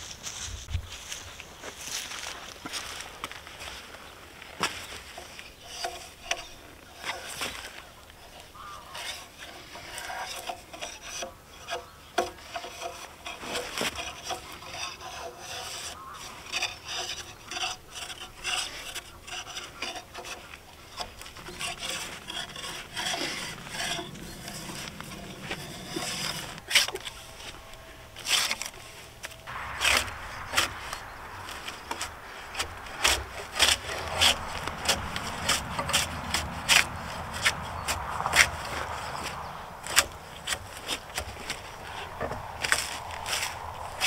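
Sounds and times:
tool scraping bark off log: 0:04.6 - 0:44.0.

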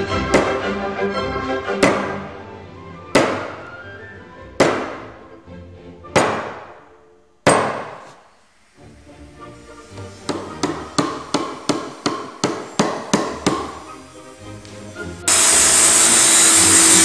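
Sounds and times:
background music: 0:00.0 - 0:08.0, 0:08.6 - 0:17.0
mallet striking chisel: 0:00.3 - 0:00.6, 0:01.8 - 0:02.2, 0:03.1 - 0:03.7, 0:04.6 - 0:05.1, 0:06.1 - 0:06.8, 0:07.4 - 0:08.2, 0:10.3 - 0:13.8.

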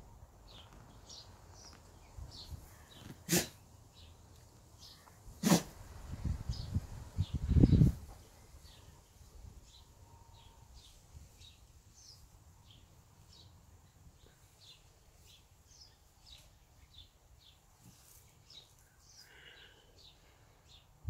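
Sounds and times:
bird chirping: 0:08.5 - 0:17.6.

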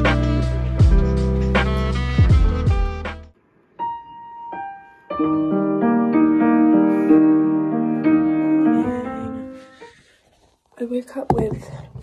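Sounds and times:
soft piano chords: 0:03.8 - 0:09.8.

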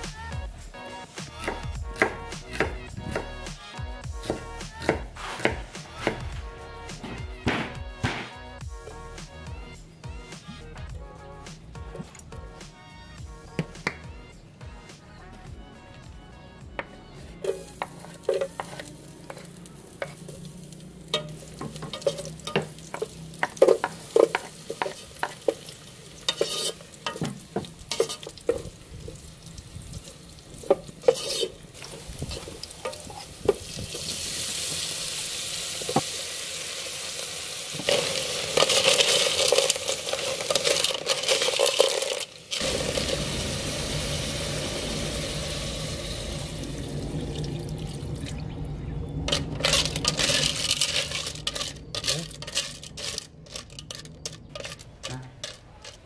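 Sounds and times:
wooden spoon scraping pot: 0:17.4 - 0:20.4, 0:26.3 - 0:27.2, 0:30.7 - 0:33.4, 0:37.8 - 0:42.7, 0:49.3 - 0:56.0
garlic frying in oil: 0:17.4 - 0:48.1.

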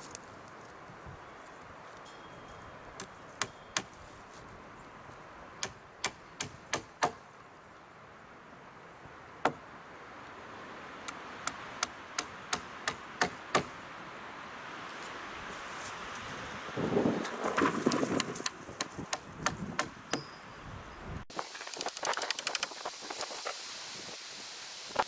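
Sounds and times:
hammer striking wood: 0:05.6 - 0:07.2, 0:11.5 - 0:13.7, 0:17.6 - 0:20.3.

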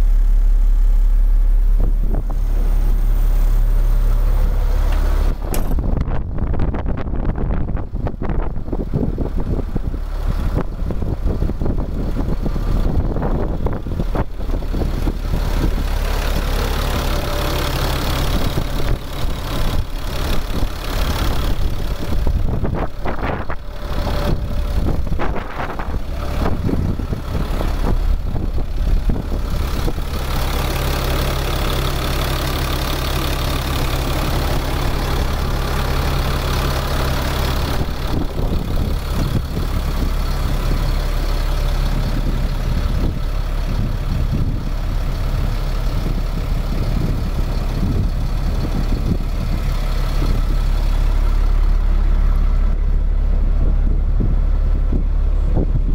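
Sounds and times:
diesel truck engine idling: 0:00.0 - 0:55.9.

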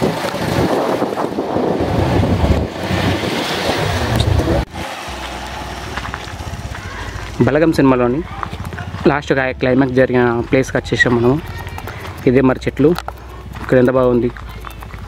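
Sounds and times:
wind buffeting microphone: 0:00.0 - 0:04.7
motorcycle engine running: 0:00.0 - 0:15.0.

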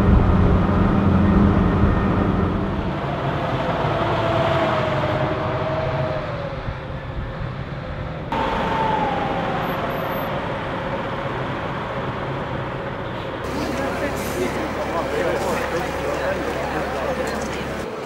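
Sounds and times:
higher falling whine: 0:00.0 - 0:07.1, 0:08.3 - 0:12.3
steady whine sliding down in pitch: 0:00.0 - 0:12.2
armoured vehicle diesel engines: 0:00.0 - 0:18.0.

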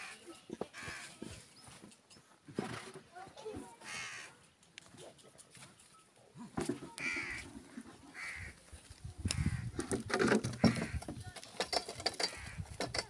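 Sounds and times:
crow cawing: 0:00.8 - 0:01.2, 0:03.8 - 0:04.4, 0:07.0 - 0:07.4, 0:08.1 - 0:08.6.

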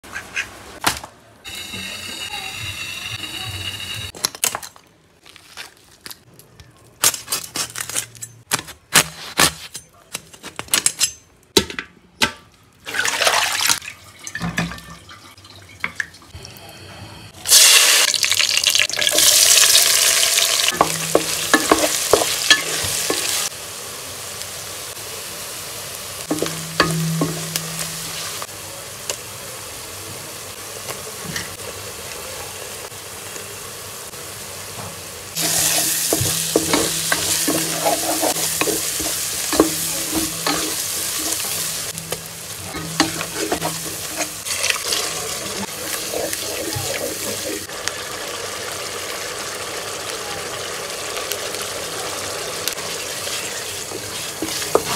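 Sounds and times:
onions frying in oil: 0:01.4 - 0:04.2, 0:16.3 - 0:54.9.

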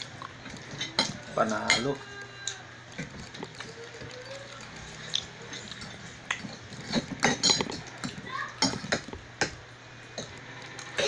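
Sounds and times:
forks clicking on plates: 0:00.0 - 0:09.6
people chewing spaghetti: 0:00.0 - 0:11.0.

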